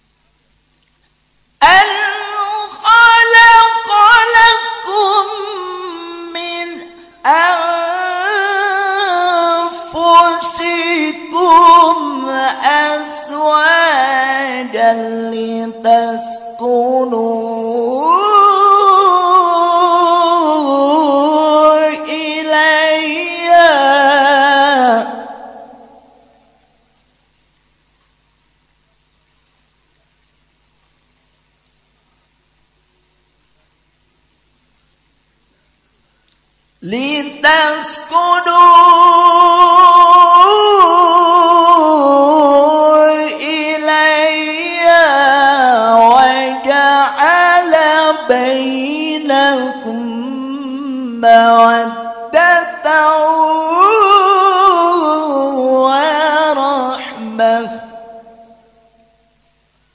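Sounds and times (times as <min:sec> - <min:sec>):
man chanting melodically: 0:01.6 - 0:26.4, 0:36.8 - 0:58.7.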